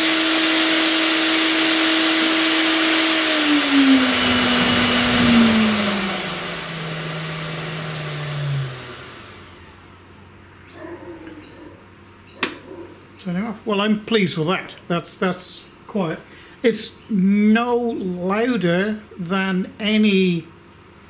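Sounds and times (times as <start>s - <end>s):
router spindle whine: 0.0s - 10.0s
cooling fan air rush: 2.6s - 10.2s.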